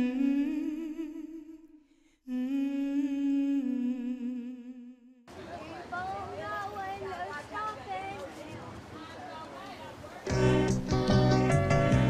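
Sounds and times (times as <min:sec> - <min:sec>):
person humming: 0:00.0 - 0:05.2.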